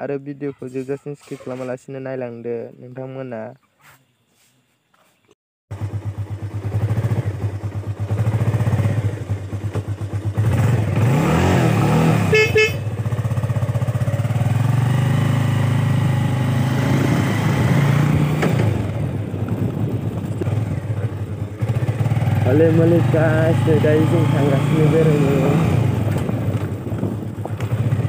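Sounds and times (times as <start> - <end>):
small motorcycle engine running: 5.7 - 28.0
motorcycle horn beeping: 12.2 - 13.2.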